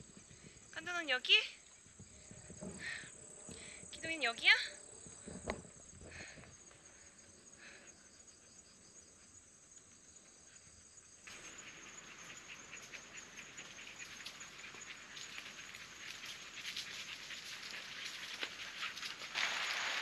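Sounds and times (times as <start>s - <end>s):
crackling patter-like hiss: 0.0s - 20.0s
high insect trill: 0.0s - 20.0s
soft chirps: 11.3s - 17.3s.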